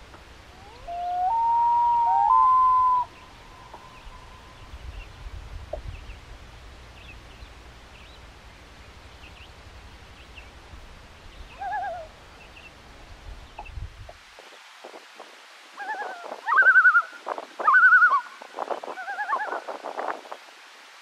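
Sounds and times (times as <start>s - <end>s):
loon tremolo call: 0.6s - 4.5s.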